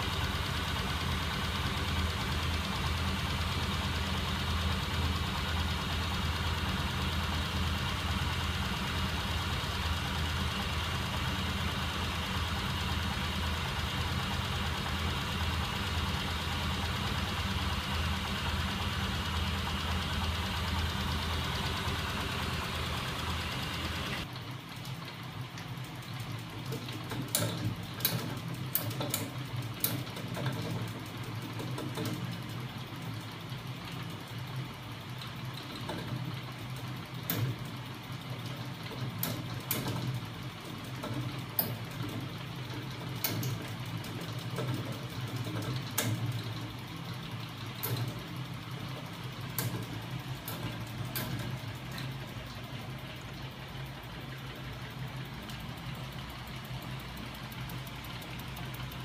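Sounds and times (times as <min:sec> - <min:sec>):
sharp mechanical clicks: 0:18.8 - 0:34.2, 0:35.0 - 0:59.0.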